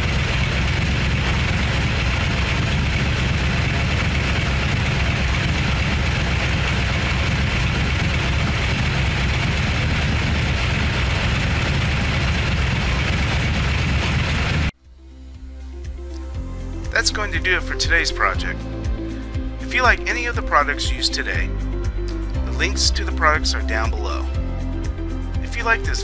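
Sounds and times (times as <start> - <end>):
car engine running: 0.0 - 14.8.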